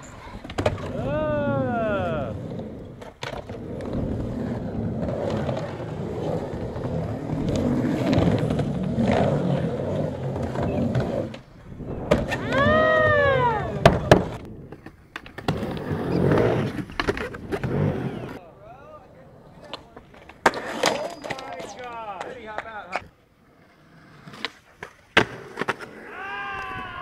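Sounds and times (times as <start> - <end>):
skateboard wheels rolling: 0.0 - 27.0
skateboard clacks: 19.6 - 23.2.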